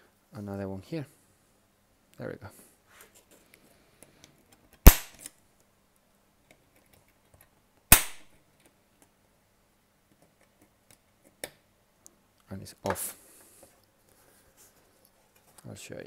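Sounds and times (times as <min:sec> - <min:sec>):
rivets snapping off: 0:04.8 - 0:05.4.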